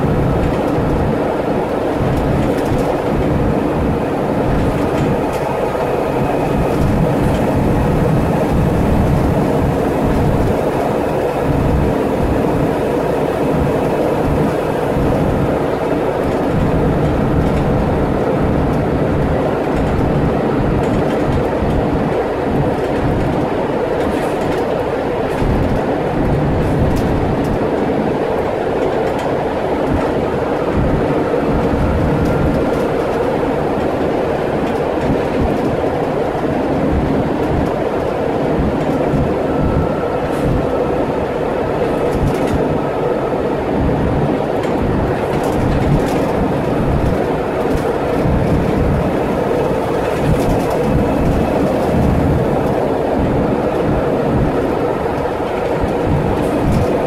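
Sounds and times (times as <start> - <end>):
bus engine droning: 0.0 - 57.0
rumble of road noise: 0.0 - 57.0.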